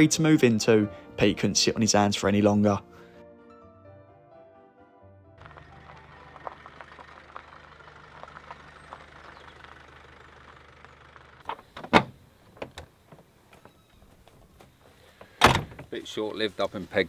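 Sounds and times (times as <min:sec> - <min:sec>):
van engine running: 0:05.4 - 0:15.1
car door clunk: 0:11.5 - 0:13.8, 0:14.4 - 0:15.9.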